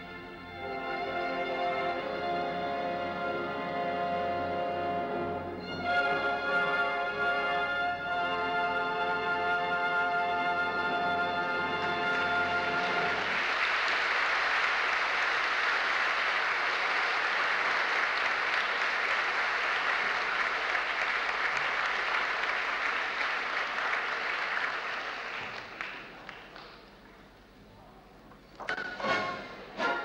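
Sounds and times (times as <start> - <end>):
audience applause: 11.8 - 27.0.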